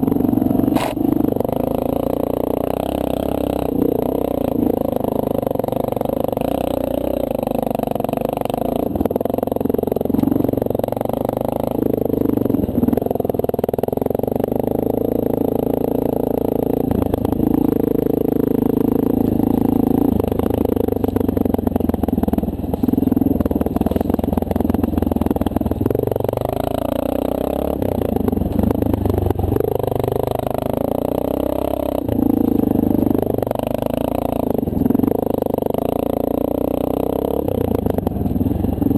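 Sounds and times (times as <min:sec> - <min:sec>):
dirt bike engine revving: 0:00.0 - 0:38.9.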